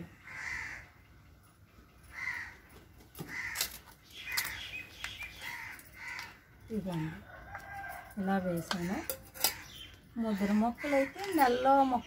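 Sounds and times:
crow cawing: 0.2 - 1.0, 2.1 - 2.6, 3.2 - 3.8, 5.4 - 6.4.

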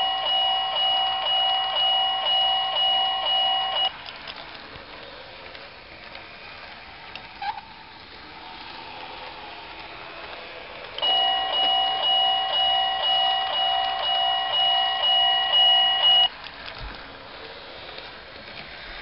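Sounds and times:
level-crossing warning bell: 0.0 - 3.9, 11.0 - 16.3.

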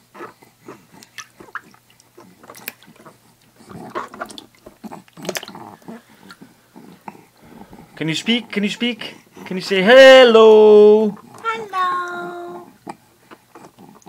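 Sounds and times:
baby cooing: 11.2 - 12.8.

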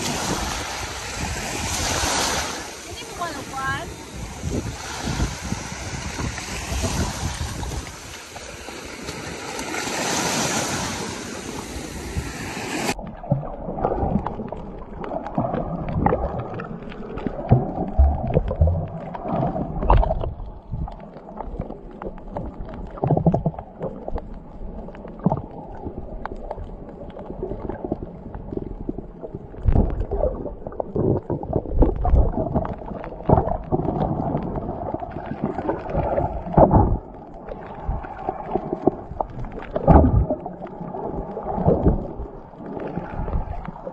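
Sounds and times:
wind on microphone: 0.0 - 13.0
small waves washing onto beach: 0.0 - 43.9
underwater bubbling and sloshing: 0.0 - 43.9
underwater knocks: 17.2 - 20.9, 22.3 - 24.0, 29.6 - 37.1, 38.8 - 40.5.

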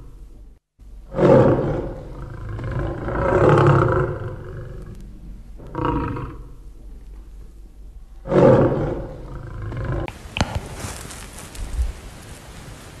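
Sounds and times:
lion roaring: 1.0 - 10.1.

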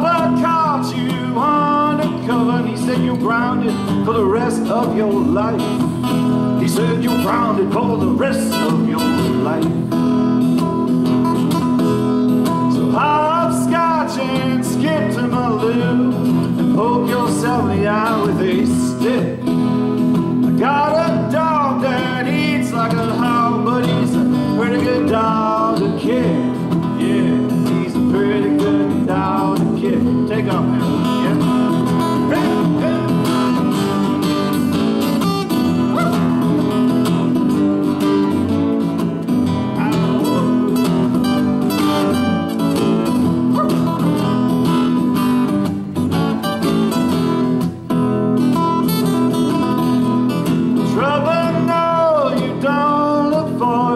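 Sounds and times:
acoustic guitars strumming: 0.0 - 53.9
person singing: 20.6 - 33.6, 39.6 - 41.2, 50.9 - 53.9.

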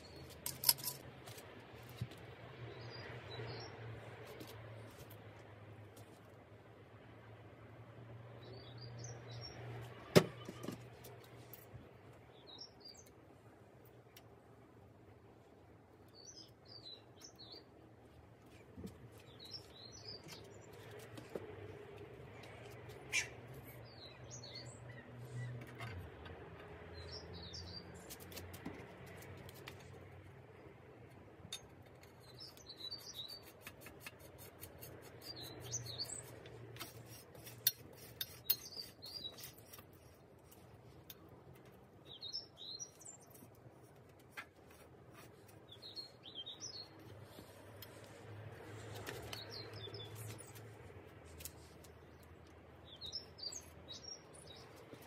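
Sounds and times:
small birds chirping: 8.4 - 11.5, 12.1 - 13.2, 16.0 - 17.8, 18.5 - 28.4, 31.5 - 55.0.

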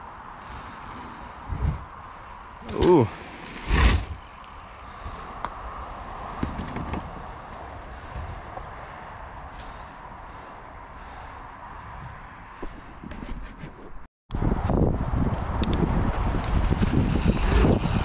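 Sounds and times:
tyres rolling on packed dirt: 0.0 - 10.0
bike knocks and rattles: 0.4 - 8.8
wind on helmet camera: 1.2 - 9.6, 11.8 - 18.0.

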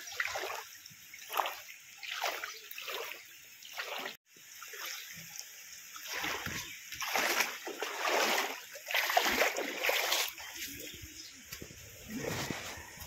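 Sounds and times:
footsteps splashing through water: 0.0 - 5.0, 6.0 - 11.0.

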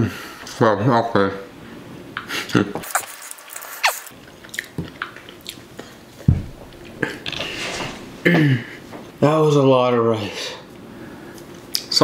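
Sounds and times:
person chewing and swallowing: 3.8 - 7.5
dull thump: 6.3 - 6.7.

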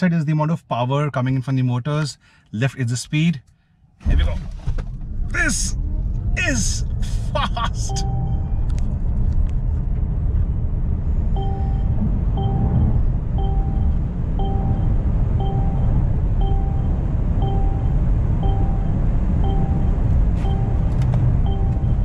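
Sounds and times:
road and wind rumble in car: 3.9 - 22.0
dashboard warning chime beeping: 7.8 - 8.6, 11.3 - 22.0.

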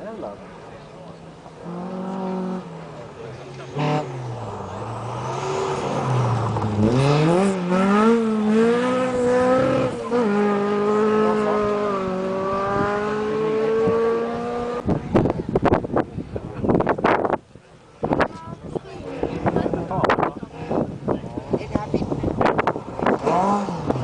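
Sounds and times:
rally car engine accelerating: 1.3 - 15.7, 18.9 - 24.0.

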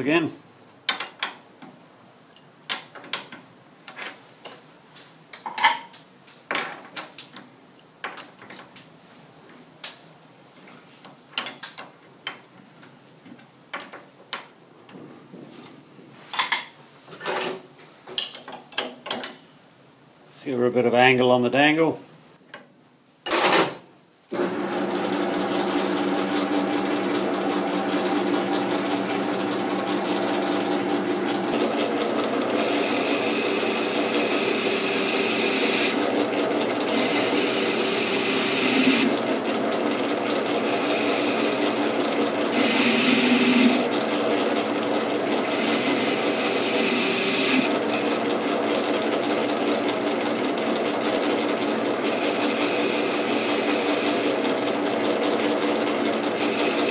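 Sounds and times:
metal lathe humming: 24.4 - 50.8, 51.7 - 56.9.

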